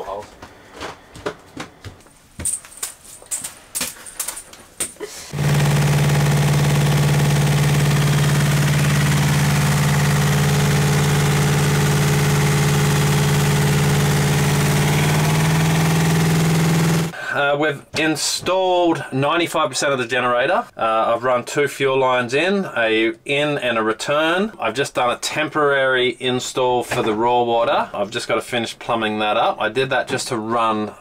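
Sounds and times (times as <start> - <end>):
machine humming: 5.3 - 17.1.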